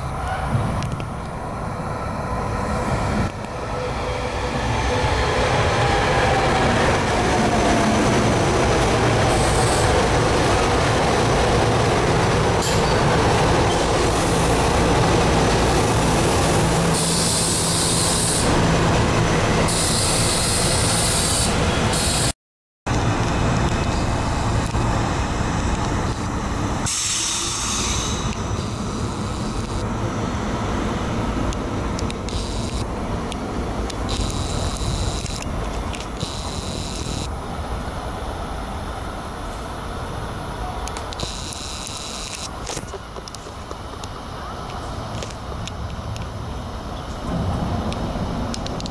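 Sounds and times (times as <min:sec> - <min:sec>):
train wheels rumbling on rail: 0:00.0 - 0:22.3, 0:22.9 - 0:48.9.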